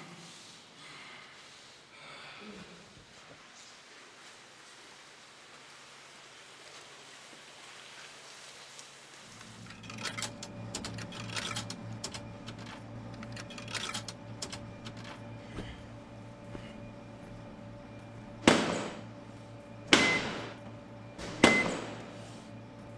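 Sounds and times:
vending machine electrical hum: 0:09.3 - 0:22.9.

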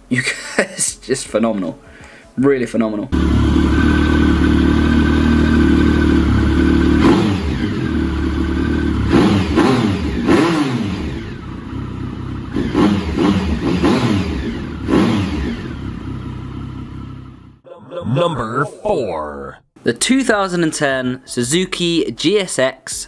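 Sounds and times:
motorcycle engine revving: 0:03.2 - 0:17.6.

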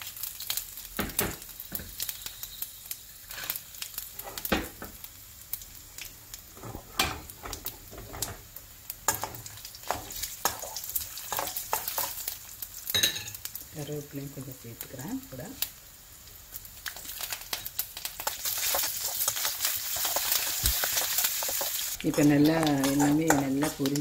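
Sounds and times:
spices sizzling in hot oil: 0:00.0 - 0:24.0
metal spoon scraping pan: 0:18.6 - 0:24.0.

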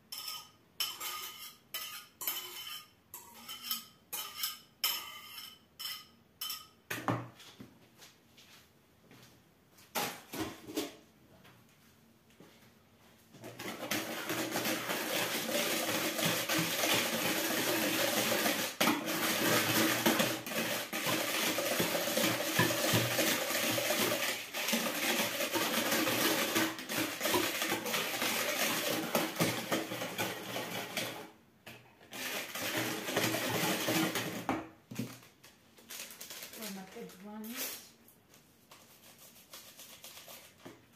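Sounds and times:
whisk beating batter in plastic bowl: 0:13.4 - 0:31.3, 0:32.1 - 0:34.6.

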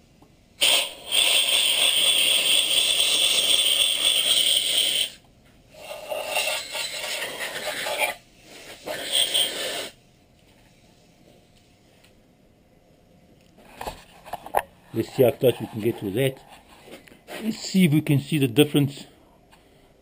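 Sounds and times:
harsh scraping on metal: 0:05.8 - 0:10.0.

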